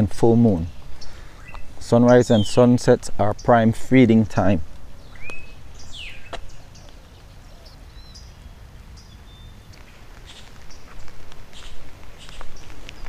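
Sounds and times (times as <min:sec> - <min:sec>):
birds chirping: 0:00.0 - 0:13.0
crisp scuffs: 0:09.8 - 0:13.0.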